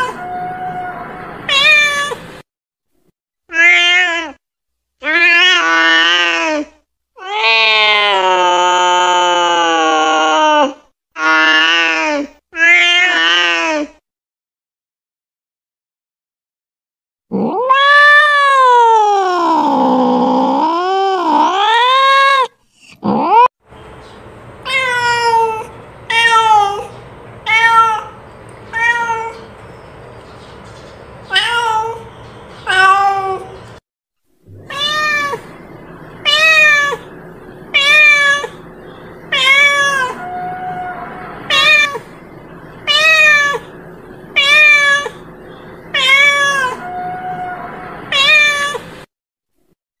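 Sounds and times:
cat meowing: 0.0s - 2.3s, 3.5s - 4.4s, 7.2s - 10.7s, 17.4s - 20.0s, 24.6s - 29.5s, 31.2s - 33.7s, 34.5s - 37.1s, 37.7s - 38.6s, 39.3s - 42.2s, 42.8s - 45.3s, 45.9s - 49.0s.

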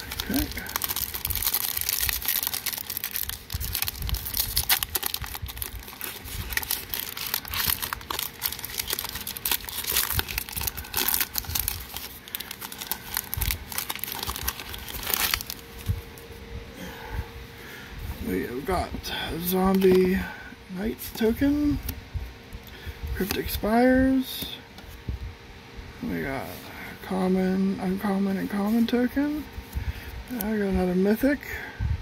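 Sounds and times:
foil wrapper crinkling and tearing: 0.0s - 16.0s.

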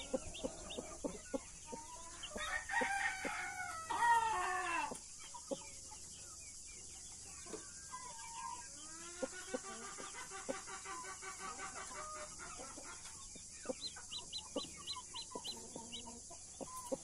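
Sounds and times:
hen clucking: 0.0s - 5.7s, 7.4s - 17.0s
rooster crowing: 2.2s - 5.0s.

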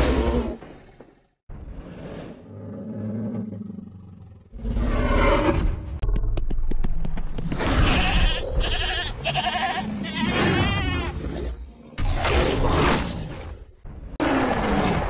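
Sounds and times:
loud roaring: 14.2s - 15.0s.

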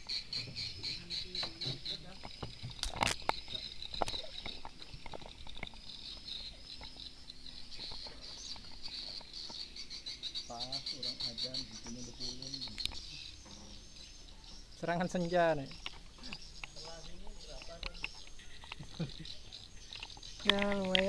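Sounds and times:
insects chirping: 0.0s - 21.0s
sharp clicks: 17.5s - 19.0s.

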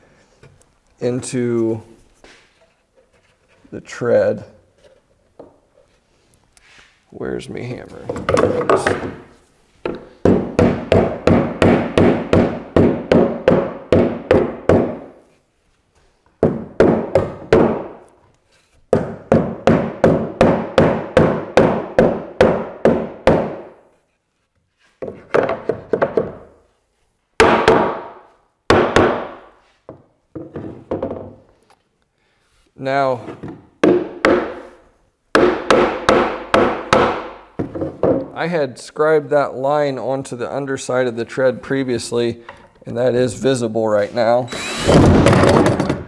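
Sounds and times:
hammer striking wooden wedges: 8.1s - 15.1s, 16.4s - 18.1s, 18.9s - 23.8s, 27.4s - 31.4s, 33.4s - 38.3s.

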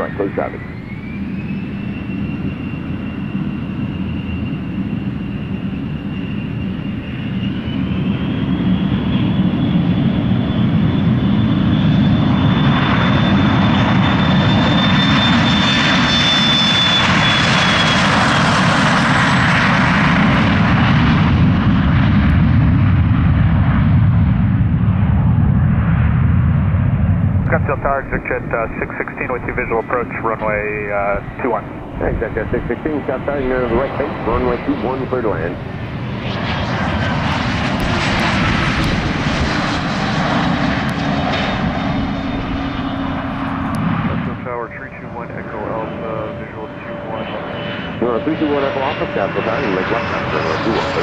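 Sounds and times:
jet engine low rumble: 0.0s - 51.0s
jet engine whine rising: 0.0s - 51.0s.

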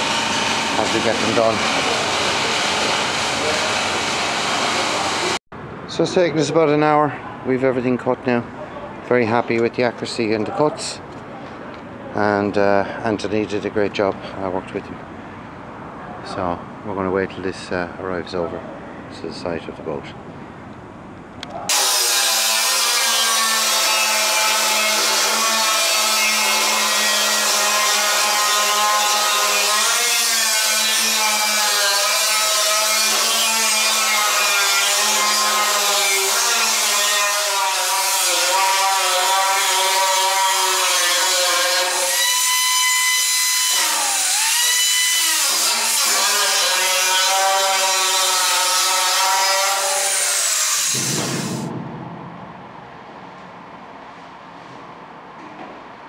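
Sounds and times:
angle grinder whine on steel: 0.0s - 5.4s, 21.7s - 52.0s.

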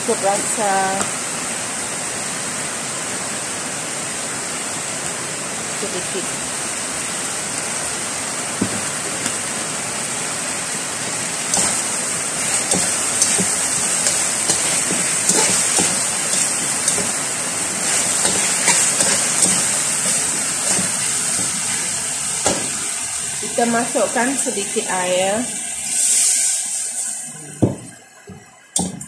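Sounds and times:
heavy rain: 0.0s - 25.4s
chicken sizzling in a wok: 0.0s - 27.4s
metal turner scraping a wok: 11.5s - 17.2s, 17.8s - 21.8s.

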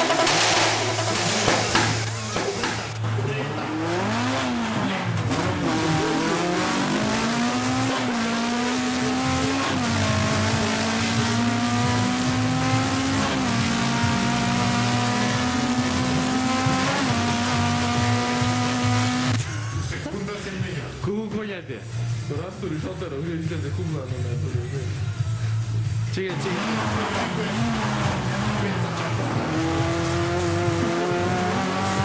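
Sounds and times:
race car engine accelerating: 0.0s - 19.4s, 26.2s - 32.0s.

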